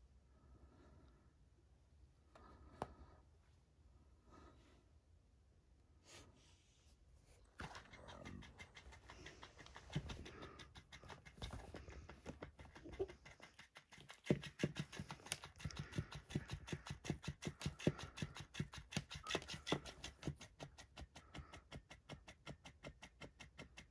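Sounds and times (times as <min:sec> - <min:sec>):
cat scuffling with toy: 0:07.2 - 0:20.6
toy fish tail flapping: 0:07.6 - 0:21.9.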